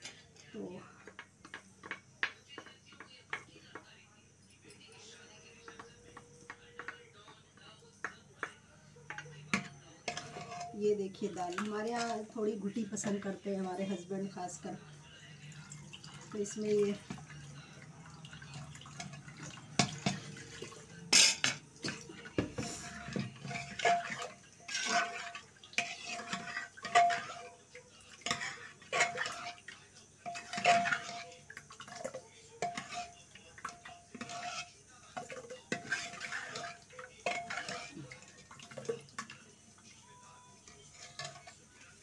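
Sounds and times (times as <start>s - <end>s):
ladle scraping metal pot: 9.1s - 14.0s, 18.4s - 39.9s, 40.6s - 42.0s.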